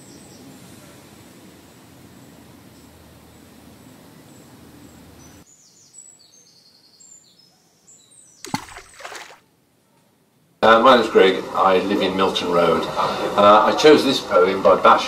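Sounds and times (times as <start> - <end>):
splash into water: 8.4 - 9.4.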